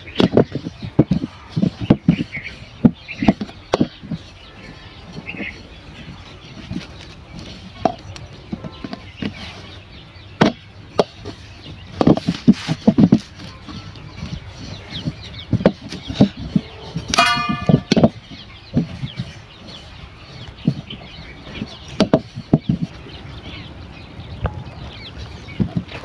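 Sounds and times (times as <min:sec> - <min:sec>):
small birds chirping: 0:00.0 - 0:26.0
rolling pin knocking on metal: 0:17.1 - 0:18.2
steel bowl clinking: 0:17.2 - 0:17.9.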